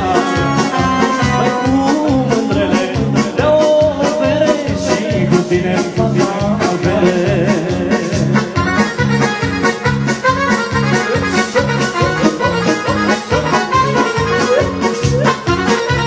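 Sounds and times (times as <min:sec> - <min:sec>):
dance band music: 0:00.0 - 0:16.0.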